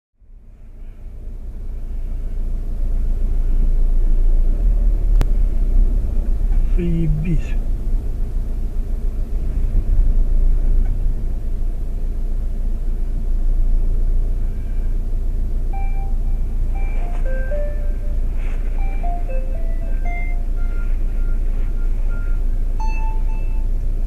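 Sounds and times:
motor vehicle rumble: 0:00.2 - 0:24.0
electronic beeping tune: 0:15.7 - 0:23.8.

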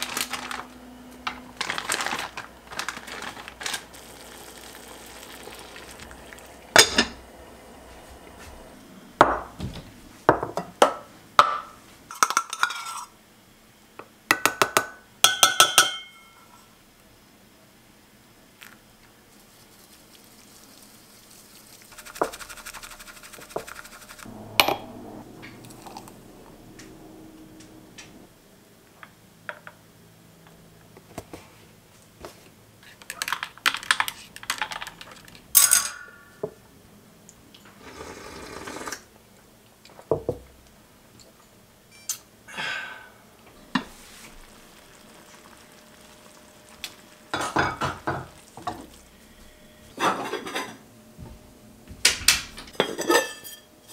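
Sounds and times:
dishes and utensils clinking: 0:12.1 - 0:13.1, 0:15.3 - 0:16.7, 0:47.3 - 0:48.9, 0:49.9 - 0:50.8, 0:52.7 - 0:53.9
whisk brushing a ceramic bowl: 0:19.3 - 0:24.3.

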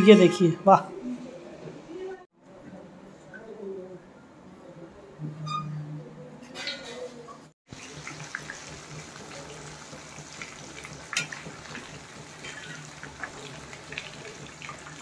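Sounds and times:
food deep-frying in oil: 0:07.7 - 0:15.0.

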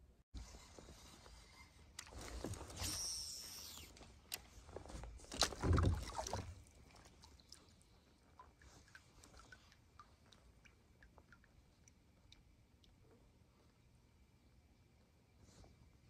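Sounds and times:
water splashing: 0:05.2 - 0:12.5.

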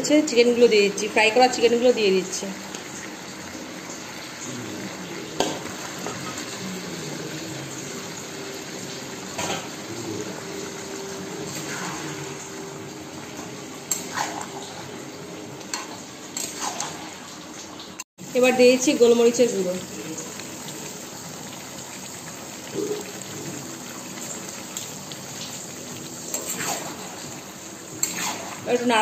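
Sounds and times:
gravy bubbling and sizzling: 0:00.0 - 0:29.0
spatula scraping a pan: 0:15.7 - 0:17.0, 0:28.0 - 0:28.8.

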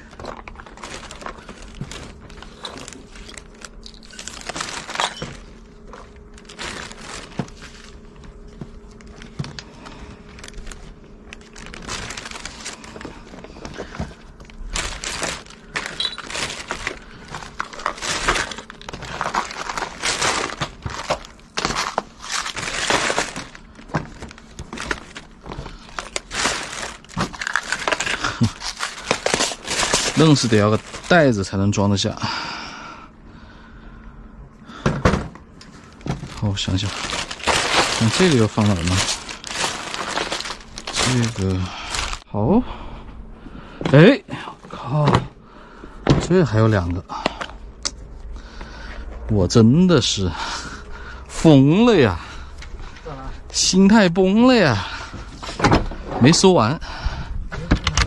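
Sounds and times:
plastic bags rustling: 0:00.0 - 0:32.2, 0:35.4 - 0:42.3.

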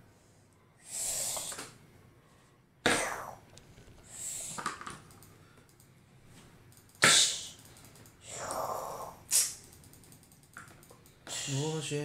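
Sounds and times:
person breathing in bursts: 0:00.1 - 0:03.4, 0:04.0 - 0:04.6.

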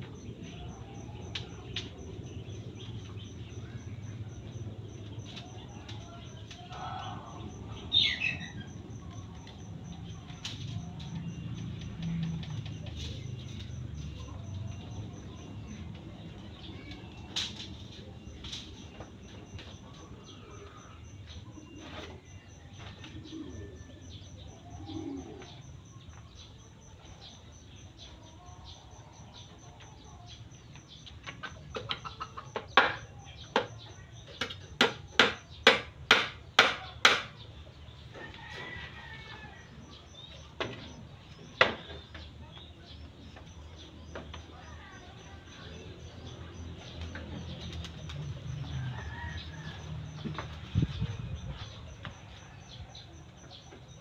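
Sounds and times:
tool knocking on bamboo pole: 0:34.4 - 0:37.4.

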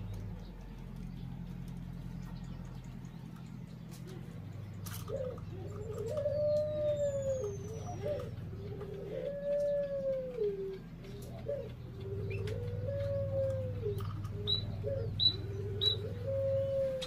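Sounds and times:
small birds whistling: 0:00.0 - 0:17.0
steady low hum: 0:00.0 - 0:17.0
dove cooing: 0:03.3 - 0:17.0.

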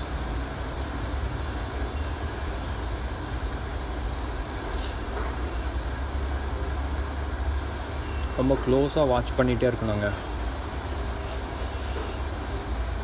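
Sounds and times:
faint brief hisses: 0:04.7 - 0:05.0.

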